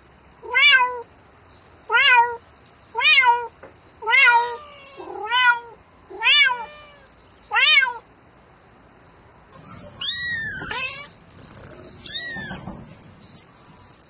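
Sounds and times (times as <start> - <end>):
cat meowing: 0.4 - 1.1, 1.9 - 2.4, 3.0 - 8.0, 9.6 - 13.5.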